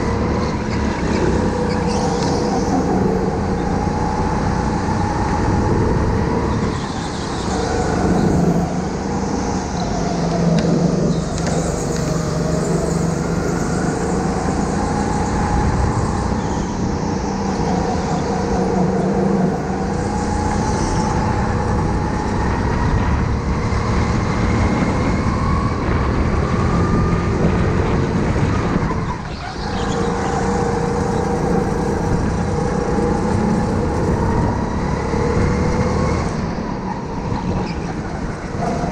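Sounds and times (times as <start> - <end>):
go-kart motor running: 17.6 - 38.9.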